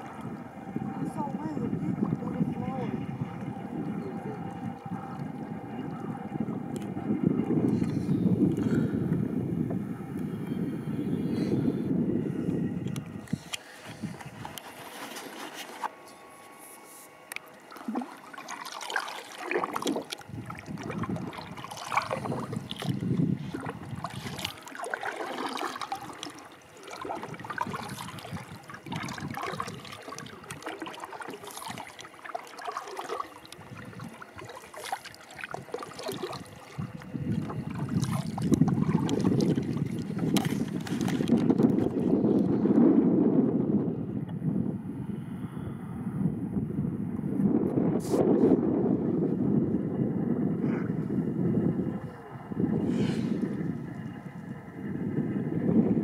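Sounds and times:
wind on microphone: 0.0 - 15.0, 19.4 - 56.0
water splashing around kayak: 17.3 - 42.8.

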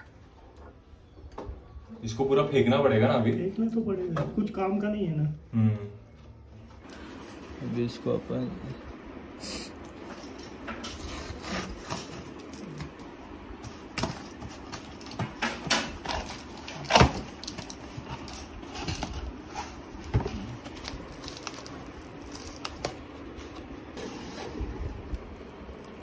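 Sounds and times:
cardboard flaps scraping and rustling: 10.8 - 25.8.

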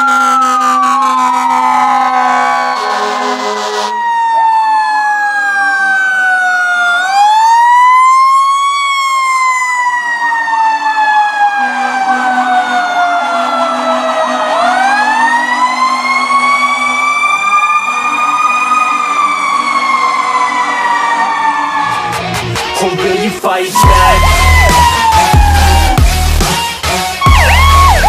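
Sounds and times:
siren warbling rapidly: 0.0 - 9.7, 23.8 - 26.4, 27.2 - 28.0
fire truck siren wailing: 0.0 - 28.0.

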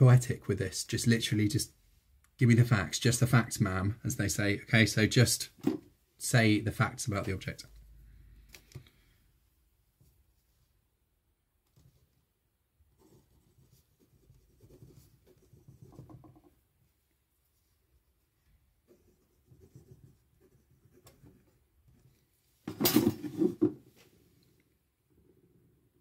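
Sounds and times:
pen scratching on paper: 13.0 - 16.2, 18.9 - 21.6.

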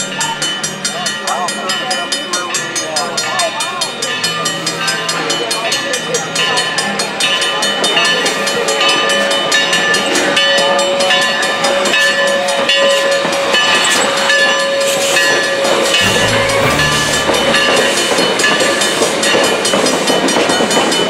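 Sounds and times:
brief lower tone: 16.0 - 18.3
steam train whistle: 16.0 - 18.7.

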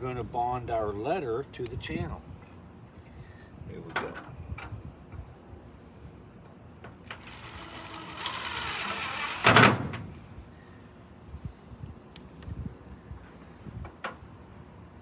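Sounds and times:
cordless drill driving screw: 7.1 - 9.5.

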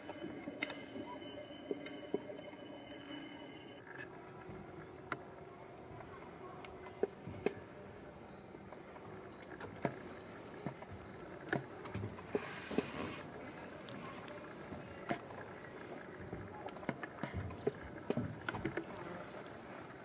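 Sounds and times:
faint high chirps: 0.0 - 3.8
insects droning: 0.0 - 20.0.

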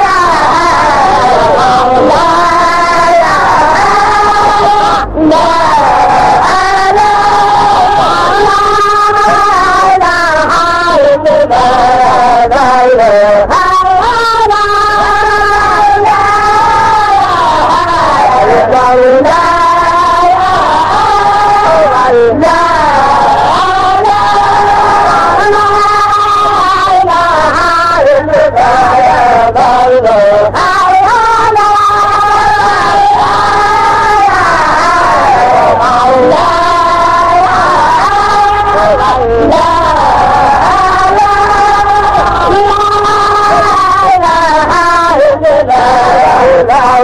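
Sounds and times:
voices chanting: 0.0 - 47.0.

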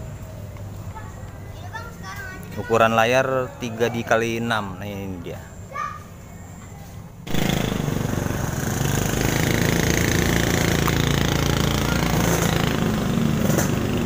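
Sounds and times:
small engine droning: 7.3 - 14.0.

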